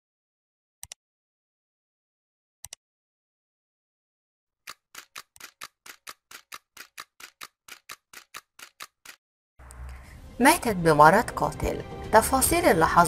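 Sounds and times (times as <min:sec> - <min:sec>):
rapid ticking clicks: 0:04.7 - 0:09.2.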